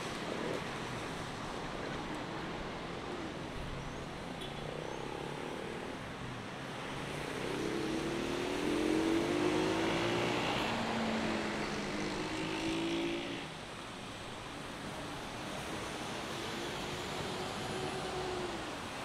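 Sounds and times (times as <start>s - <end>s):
passing vehicle engine: 7.0s - 13.6s.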